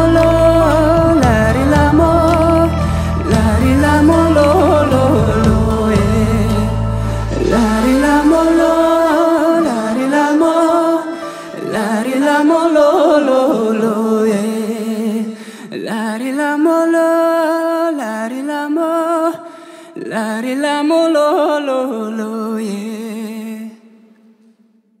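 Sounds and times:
sustained accompaniment chord: 0:00.0 - 0:11.6
man singing a slow ballad: 0:00.0 - 0:24.1.

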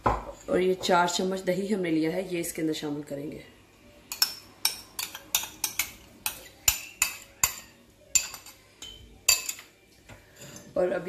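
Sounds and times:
metal spoon clinking on glass bowl: 0:04.1 - 0:09.7.

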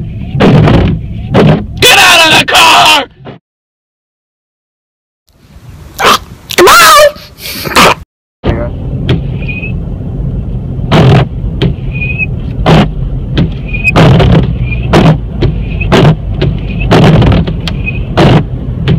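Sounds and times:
windshield wipers thumping: 0:00.2 - 0:01.8, 0:08.5 - 0:09.6, 0:10.6 - 0:18.9
wiper squeaks: 0:09.3 - 0:09.8, 0:11.8 - 0:12.3, 0:13.6 - 0:18.1.

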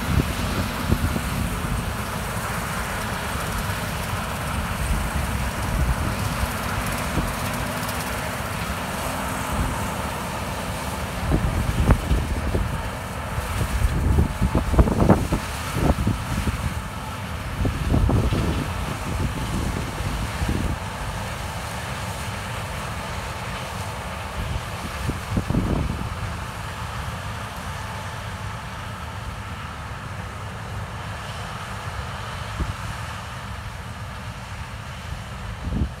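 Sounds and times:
wind buffeting microphone: 0:00.0 - 0:02.3, 0:04.5 - 0:07.6, 0:11.1 - 0:21.2, 0:24.4 - 0:26.4
combine harvester drone: 0:00.0 - 0:36.0.

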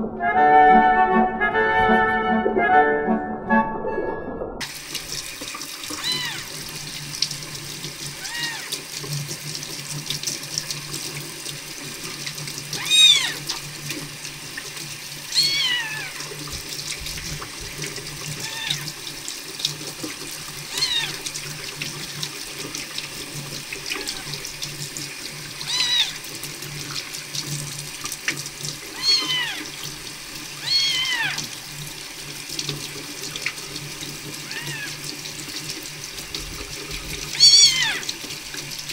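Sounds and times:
kitten mewing: 0:06.0 - 0:06.5, 0:08.2 - 0:08.7, 0:12.8 - 0:13.4, 0:15.3 - 0:16.2, 0:18.4 - 0:18.8, 0:20.7 - 0:21.2, 0:25.6 - 0:26.2, 0:29.0 - 0:29.7, 0:30.6 - 0:31.4, 0:34.5 - 0:34.9, 0:37.4 - 0:38.0
tap running into sink: 0:16.2 - 0:19.0.

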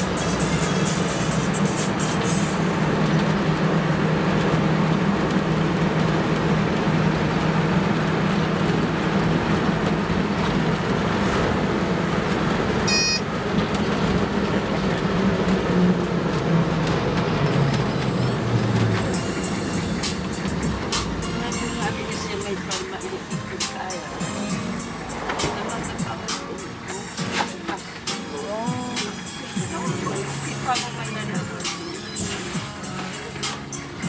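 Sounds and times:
bus engine and road noise: 0:00.0 - 0:34.0
high electronic beeping: 0:12.9 - 0:13.3, 0:28.5 - 0:32.8.

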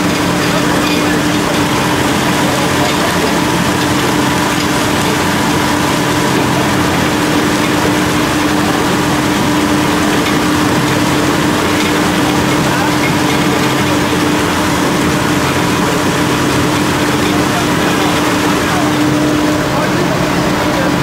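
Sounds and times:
heavy machinery droning: 0:00.0 - 0:21.0.

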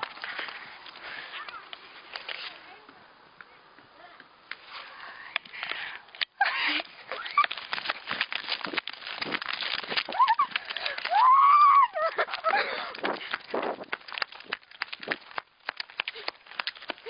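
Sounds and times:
girl squealing: 0:10.1 - 0:12.3.

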